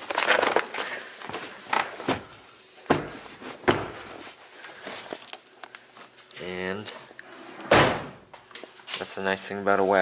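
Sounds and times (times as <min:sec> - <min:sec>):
carpet rustling: 0:01.2 - 0:06.2
knocks and thuds: 0:02.9 - 0:04.0.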